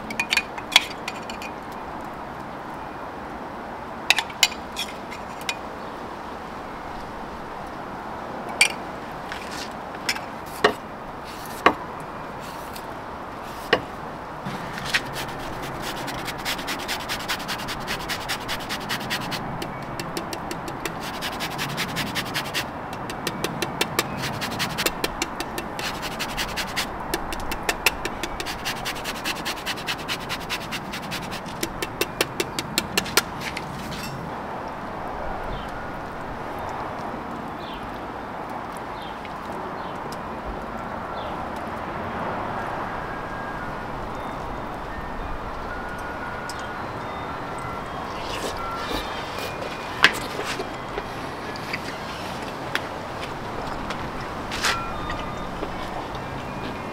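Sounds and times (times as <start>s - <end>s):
root rasped on hand grater: 14.5s - 34.2s.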